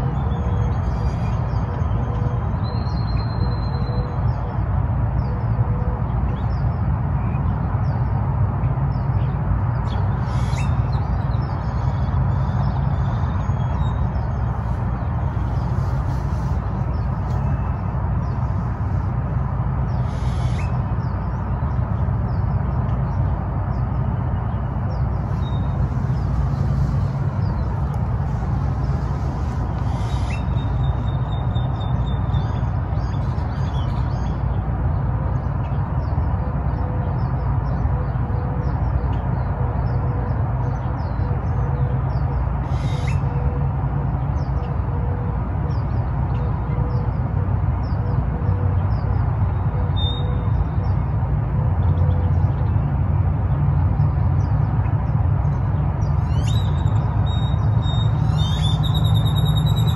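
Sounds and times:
bird calls and chirps: 0.0s - 4.6s, 8.9s - 19.1s, 19.8s - 34.6s, 35.4s - 43.5s, 47.8s - 51.1s, 54.0s - 59.9s
low outdoor rumble: 0.0s - 59.9s.

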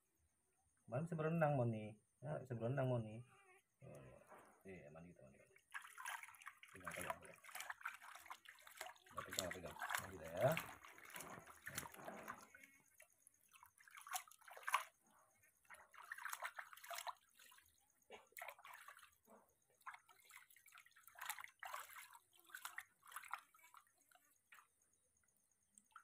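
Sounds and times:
water splashing in a basin: 5.3s - 26.0s.

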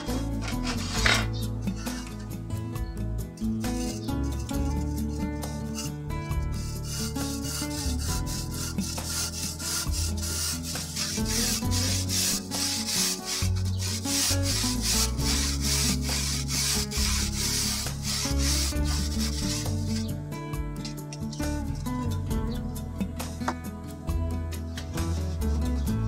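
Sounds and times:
handsaw rasping through brick: 0.0s - 2.3s, 3.6s - 20.1s
background music: 0.0s - 26.0s.

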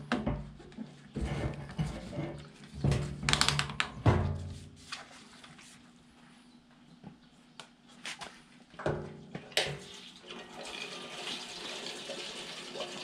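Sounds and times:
fuel pouring and splashing: 9.8s - 13.0s.

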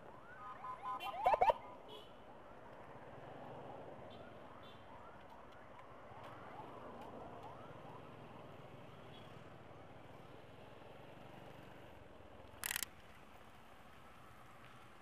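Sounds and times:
faint emergency siren: 0.0s - 10.2s.

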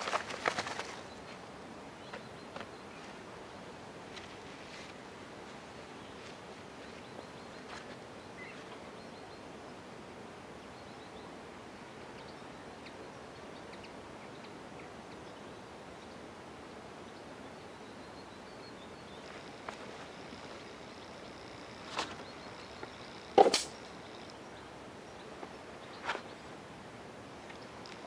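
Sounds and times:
soft outdoor hiss: 0.0s - 28.0s
faint bird chirps: 6.8s - 9.5s.

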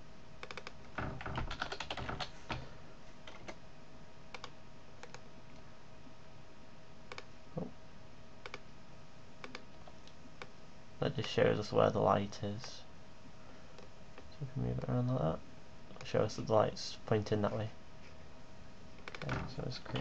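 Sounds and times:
computer keyboard typing: 0.4s - 2.6s, 3.2s - 3.6s, 4.4s - 5.2s, 8.4s - 8.6s, 9.4s - 9.6s, 19.0s - 19.3s.

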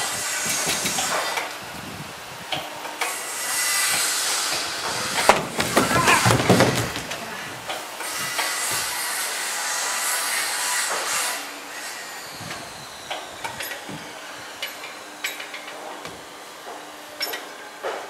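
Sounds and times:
skater scuffing across wood: 4.8s - 7.5s
skateboard bang on ramp: 4.8s - 7.6s.

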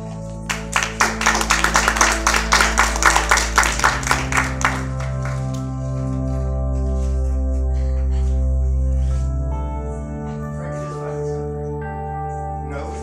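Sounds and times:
background music of held chords: 0.0s - 13.0s
audience applause: 0.5s - 5.8s.

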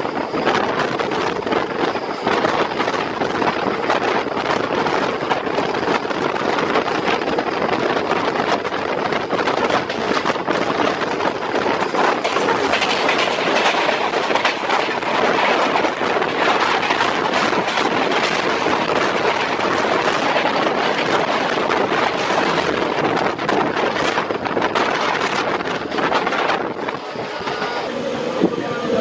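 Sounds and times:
train wheels rushing on rails: 0.0s - 29.0s
train wheels clattering: 0.2s - 27.9s.

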